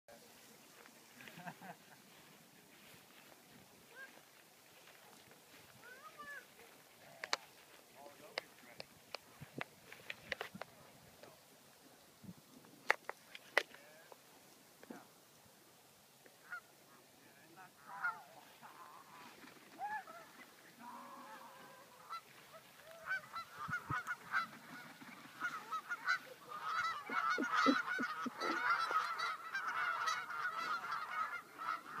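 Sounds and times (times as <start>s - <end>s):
geese honking: 16.4s - 32.0s.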